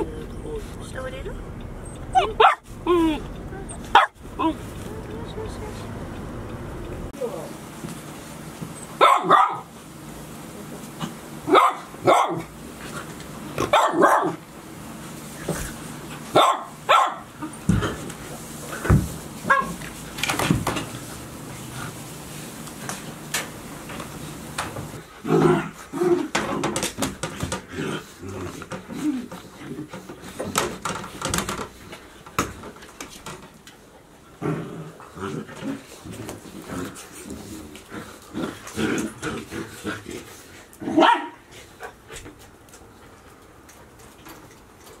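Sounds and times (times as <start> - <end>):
puppies growling and yapping: 1.6 - 5.0, 24.8 - 31.1, 34.2 - 41.1
puppies' claws clicking and tapping: 26.3 - 27.7, 28.4 - 33.8, 42.1 - 45.0.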